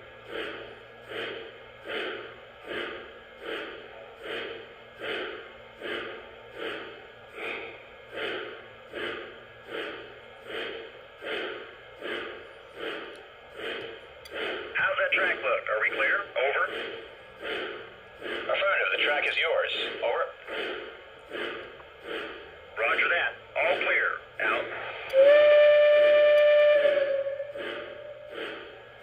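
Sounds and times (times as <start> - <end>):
model steam locomotive chuffing: 0.0 - 29.0.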